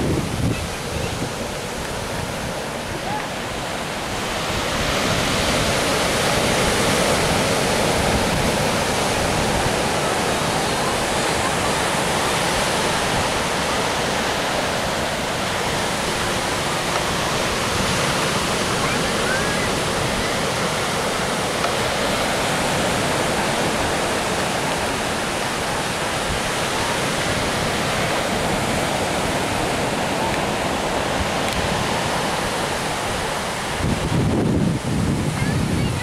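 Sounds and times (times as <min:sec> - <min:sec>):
ocean surf breaking: 0:00.0 - 0:36.0
wind buffeting microphone: 0:00.0 - 0:36.0.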